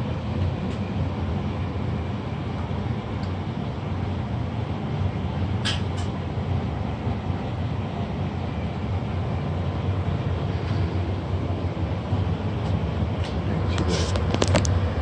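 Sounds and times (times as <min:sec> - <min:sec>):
burner low rumble: 0:06.2 - 0:15.0.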